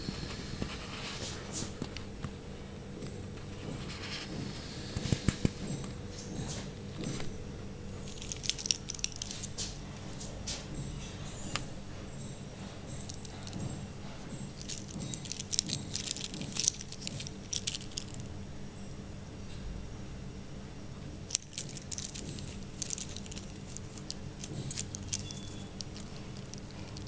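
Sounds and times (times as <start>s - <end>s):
metal watch bracelet clinking: 8.0s - 18.4s, 21.3s - 27.0s.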